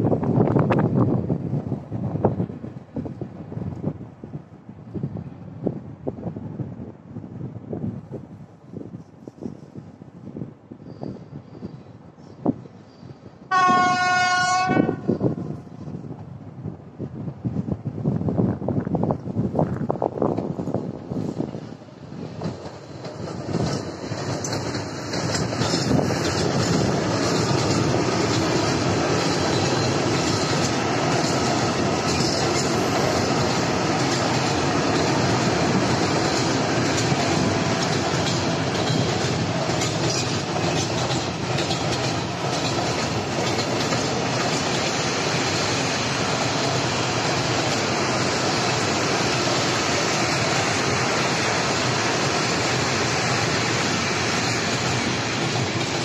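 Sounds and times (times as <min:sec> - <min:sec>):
train wheels clattering on rails: 0:19.6 - 0:56.0.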